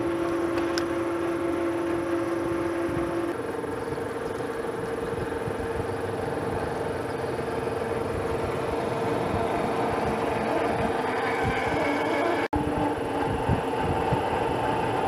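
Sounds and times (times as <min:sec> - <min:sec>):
higher machine tone: 0:00.0 - 0:15.0
metal lathe humming: 0:00.0 - 0:15.0
drill grinding into steel: 0:09.0 - 0:12.8.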